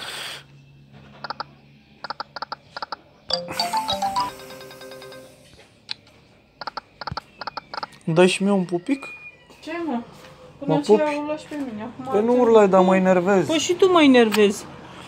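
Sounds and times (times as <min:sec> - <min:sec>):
bright chiming win jingle: 0:03.3 - 0:05.5.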